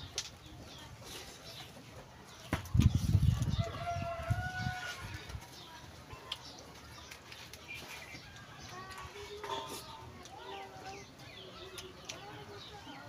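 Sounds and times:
rooster crowing: 0:03.6 - 0:05.1.

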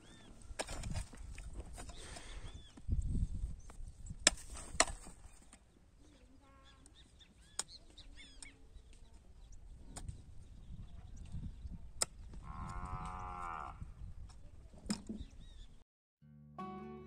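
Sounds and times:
hoe striking stony soil: 0:00.5 - 0:02.3, 0:04.1 - 0:05.6
cow mooing: 0:12.4 - 0:13.8.

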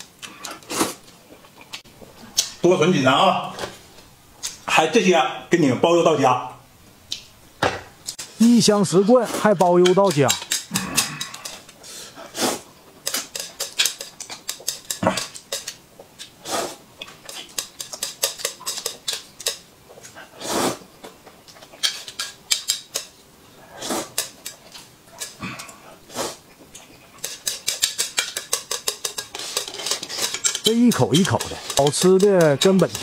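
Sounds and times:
noodles being slurped: 0:29.1 - 0:33.0.

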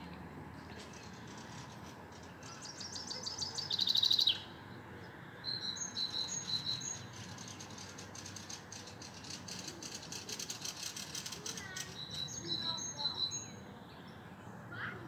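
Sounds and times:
songbird trilling: 0:02.3 - 0:04.5, 0:05.4 - 0:13.6.

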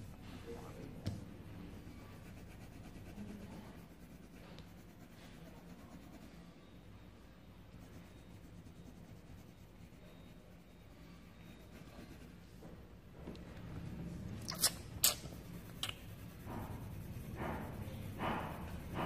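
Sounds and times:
pencil rubbing on paper: 0:01.4 - 0:06.8, 0:07.6 - 0:12.5, 0:15.1 - 0:19.0.

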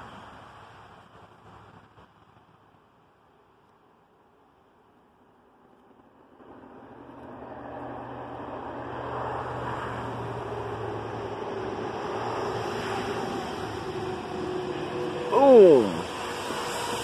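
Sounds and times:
steady machine hum with rushing: 0:06.0 - 0:17.0.

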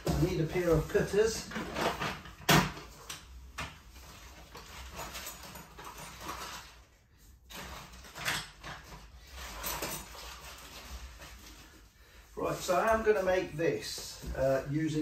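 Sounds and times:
packing material rustling in a box: 0:03.9 - 0:12.0.

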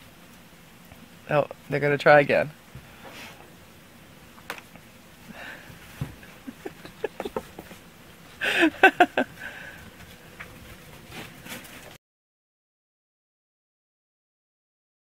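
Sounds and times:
ferrets scrambling in snow: 0:08.4 - 0:11.9.

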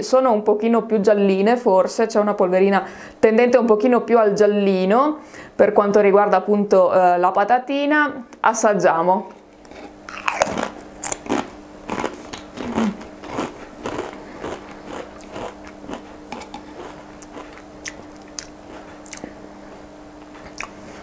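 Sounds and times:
person chewing crisps: 0:09.6 - 0:19.4, 0:20.4 - 0:20.8.

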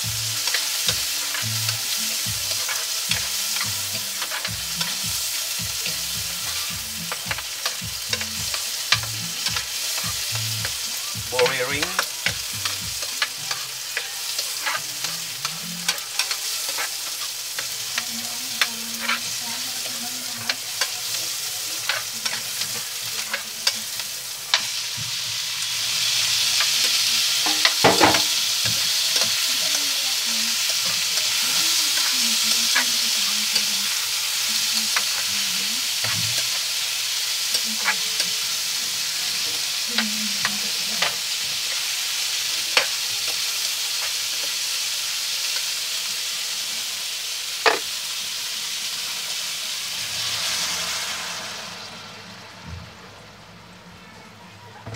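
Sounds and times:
food sizzling in frying pan: 0:00.0 - 0:54.9
spatula scraping and tapping pan: 0:26.6 - 0:29.4, 0:47.6 - 0:47.9
shells clattering against pan: 0:27.4 - 0:29.5.

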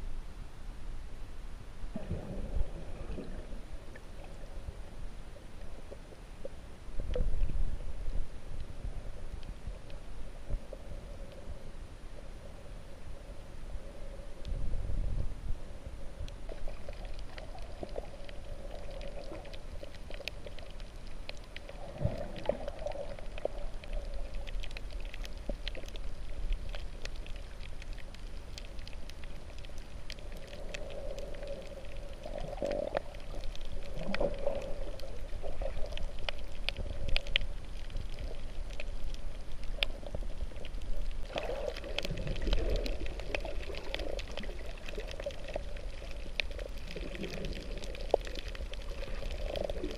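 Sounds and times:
muffled underwater rumble: 0:00.0 - 0:49.9
faint crackling clicks: 0:02.0 - 0:11.7, 0:14.1 - 0:14.6, 0:16.1 - 0:49.9.

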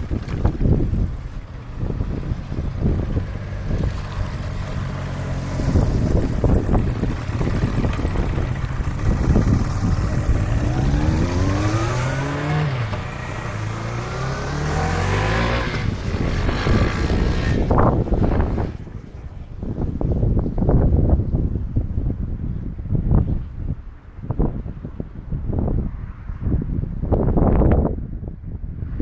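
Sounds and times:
motorcycles riding past: 0:00.0 - 0:20.0
wind buffeting microphone: 0:00.0 - 0:29.0.

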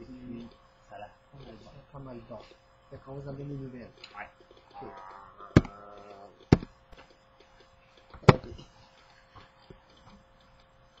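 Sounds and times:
sharp thumps: 0:05.6 - 0:05.8, 0:06.5 - 0:06.8.

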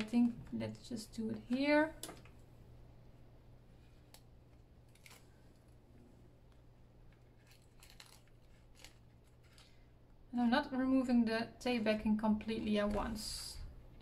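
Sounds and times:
low steady hum: 0:00.0 - 0:14.0
paper and tape rustling: 0:07.1 - 0:09.9.

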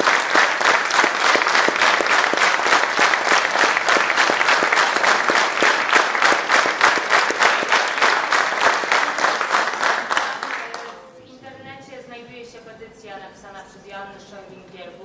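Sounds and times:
audience clapping in unison: 0:00.0 - 0:11.0.

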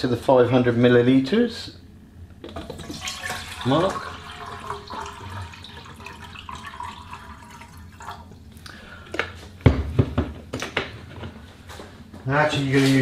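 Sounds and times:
water pouring into steel cup: 0:02.5 - 0:08.4.

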